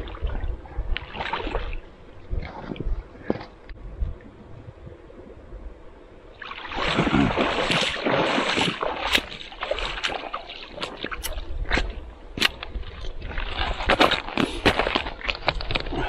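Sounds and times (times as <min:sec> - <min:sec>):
water splashing and sloshing: 0:00.0 - 0:03.8, 0:06.3 - 0:16.0.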